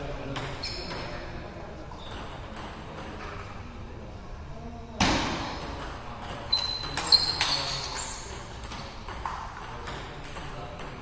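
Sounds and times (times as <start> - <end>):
high squeaks: 0.6 - 1.2, 6.5 - 8.4.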